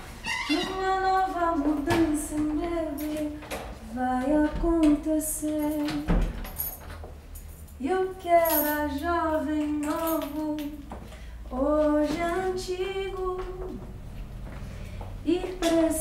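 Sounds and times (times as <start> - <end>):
woman singing slow melody: 0.5 - 6.3, 7.8 - 10.9, 11.5 - 13.8, 15.2 - 16.0.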